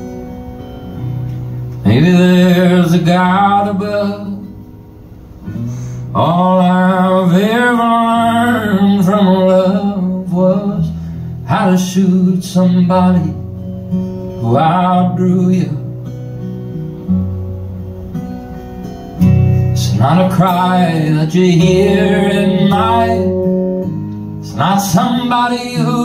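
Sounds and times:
strummed acoustic guitar: 0.0s - 26.0s
man singing: 1.8s - 4.5s, 6.1s - 13.5s, 14.4s - 15.9s, 19.8s - 23.5s, 24.4s - 26.0s.

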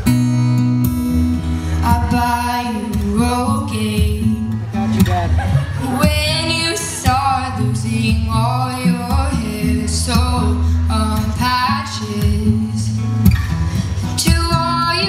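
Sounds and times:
acoustic guitar: 0.0s - 15.0s
woman singing into microphone: 1.8s - 4.6s, 5.8s - 13.2s, 14.0s - 15.0s.

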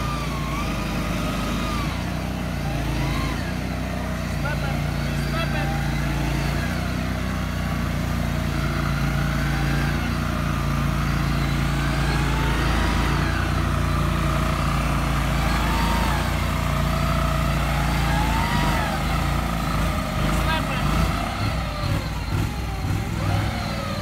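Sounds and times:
small engine running: 0.0s - 24.0s
vehicle driving through water: 0.0s - 24.0s.

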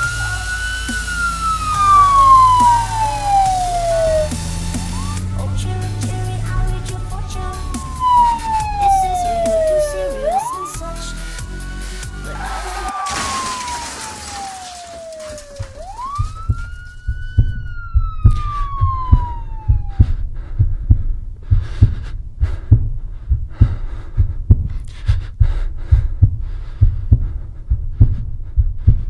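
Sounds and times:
burst of hiss: 0.0s - 5.3s
heartbeat thumps: 0.0s - 10.9s, 15.9s - 29.0s
siren wailing: 0.0s - 20.2s.

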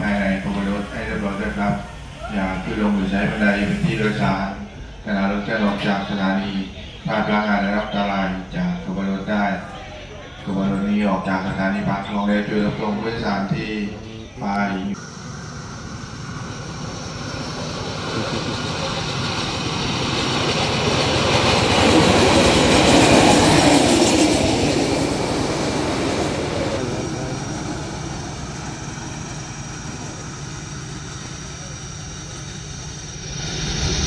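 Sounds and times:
rail trolley running on rails: 0.0s - 34.0s.

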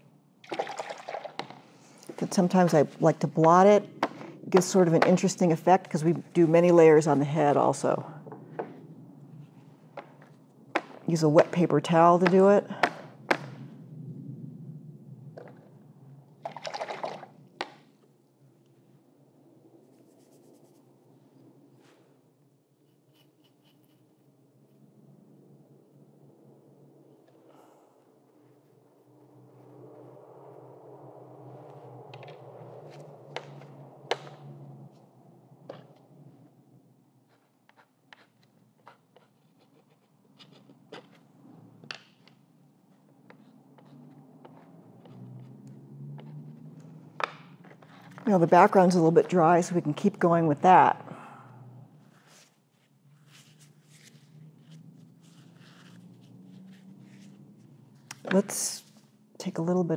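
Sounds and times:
drawing tool scratching surface: 22.8s - 24.3s, 37.2s - 41.3s, 43.3s - 45.6s.

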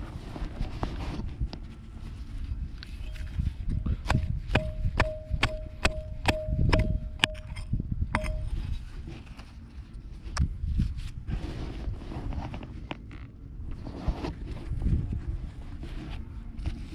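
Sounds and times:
metal tool striking hard soil: 4.0s - 8.6s.

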